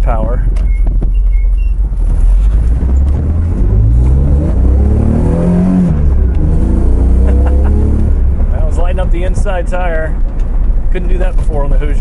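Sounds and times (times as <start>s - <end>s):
car engine accelerating: 1.5s - 12.0s.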